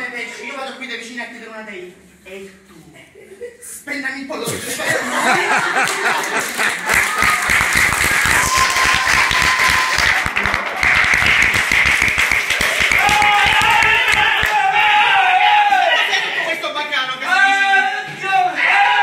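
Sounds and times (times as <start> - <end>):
audience applause: 5.4 - 14.6.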